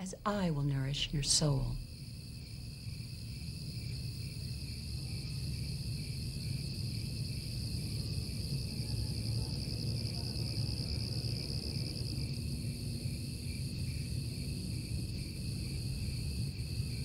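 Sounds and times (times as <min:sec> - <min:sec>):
low background rumble: 0:00.0 - 0:03.2
crickets trilling: 0:00.0 - 0:17.0.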